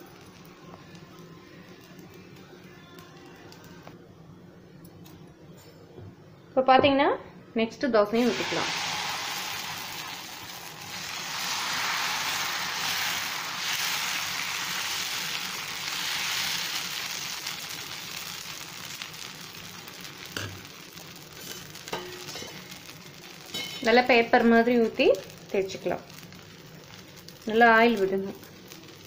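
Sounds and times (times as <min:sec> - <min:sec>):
batter sizzling on a hot griddle: 0:00.0 - 0:03.9, 0:08.2 - 0:29.0.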